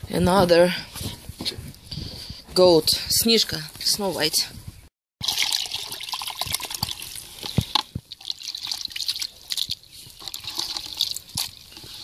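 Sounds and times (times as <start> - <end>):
small water splashes and plops: 5.2 - 11.7.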